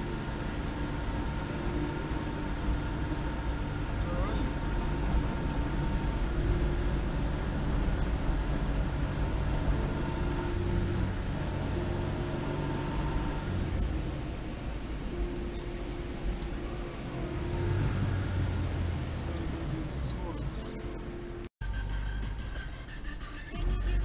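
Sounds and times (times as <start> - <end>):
car engine and tyres rumbling: 0.0 - 24.0
short high squeaks: 12.2 - 14.0, 15.1 - 18.2, 19.1 - 24.0.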